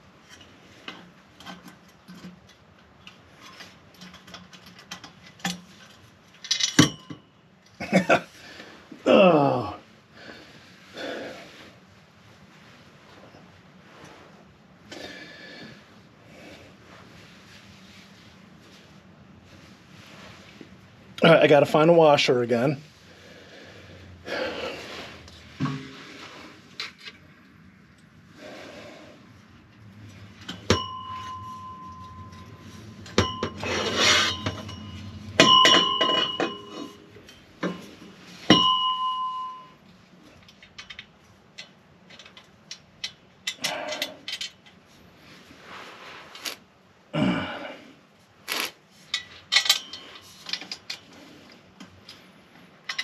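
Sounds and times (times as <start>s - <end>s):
metal tools clinking: 1.4s - 7.3s, 30.0s - 44.8s, 49.0s - 51.5s, 52.1s - 53.0s
ringing metallic strikes: 30.6s - 37.0s.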